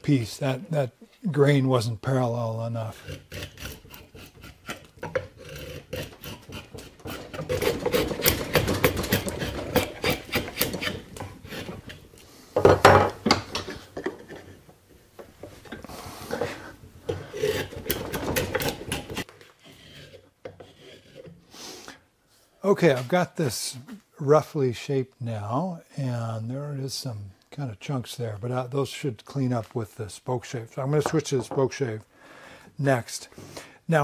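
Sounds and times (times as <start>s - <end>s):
drawknife scraping wood: 2.9s - 12.1s, 15.3s - 21.5s.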